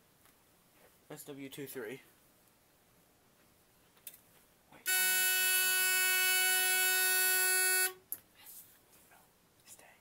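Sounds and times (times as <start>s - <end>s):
fire alarm horn blast: 4.9s - 8.0s.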